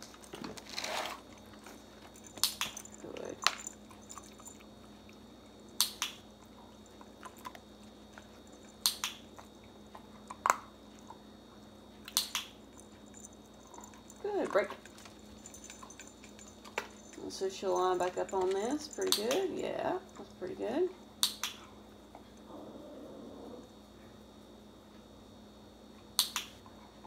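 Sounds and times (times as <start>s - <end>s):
dog-training clicker clicking: 18.3s - 19.5s.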